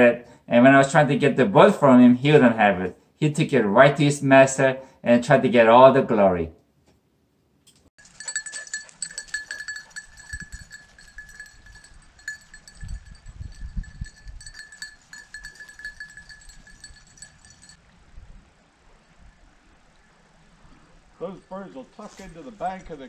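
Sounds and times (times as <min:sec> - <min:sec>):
dog collar bell jingling: 0:08.0 - 0:17.8.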